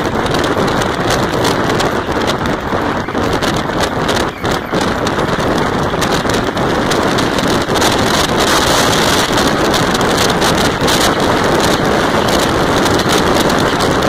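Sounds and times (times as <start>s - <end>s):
tyre and road noise: 0.0s - 14.0s
wind rushing over microphone: 0.0s - 14.0s.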